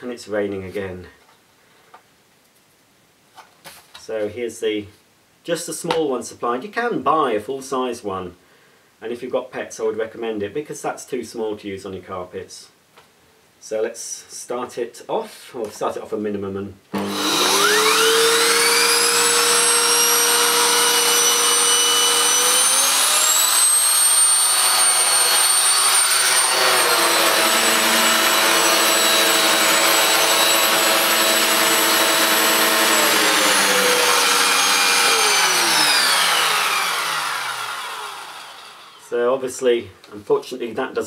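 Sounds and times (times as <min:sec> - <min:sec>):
vacuum cleaner motor whine: 0:17.0 - 0:39.0.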